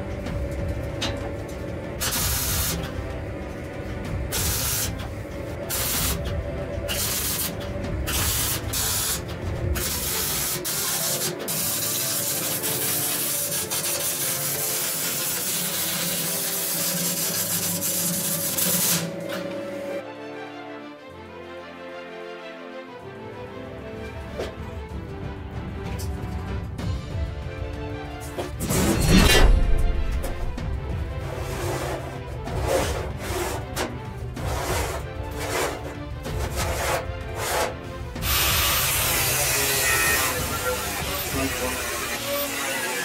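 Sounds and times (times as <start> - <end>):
mig welding: 0.4 - 3.1, 4.1 - 20.0, 32.6 - 43.0.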